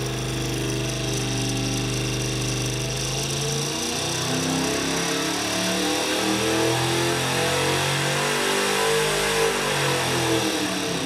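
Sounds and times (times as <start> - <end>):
engine running under load: 0.0 - 7.0.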